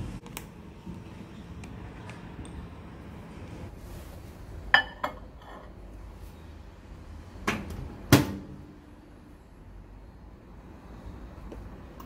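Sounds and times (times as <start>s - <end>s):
ceramic ramekins clinking: 4.7s - 5.8s.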